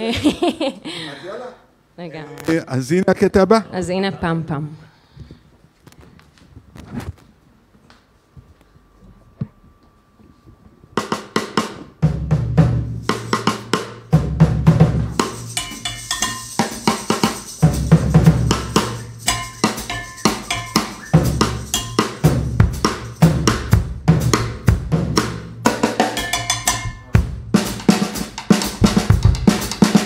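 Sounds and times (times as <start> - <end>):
drum kit: 10.9 - 30.0
double bass line: 12.3 - 16.2, 17.6 - 27.8.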